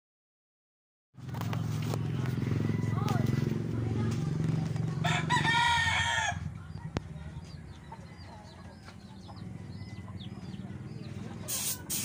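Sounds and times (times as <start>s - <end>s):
rooster crowing: 2.4s - 3.4s, 5.0s - 6.5s.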